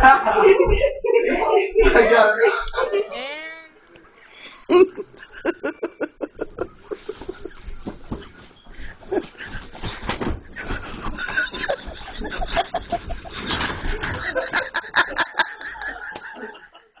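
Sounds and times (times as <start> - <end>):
people laughing: 0.0 - 3.2, 4.4 - 8.2, 8.8 - 17.0.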